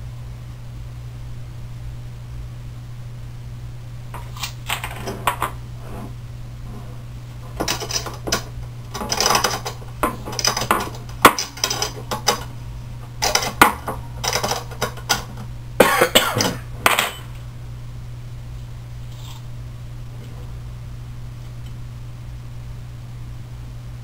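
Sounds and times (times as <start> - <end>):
steady low hum: 0.0 - 24.0
metal rods and nuts clinking: 7.5 - 12.5, 13.2 - 15.4.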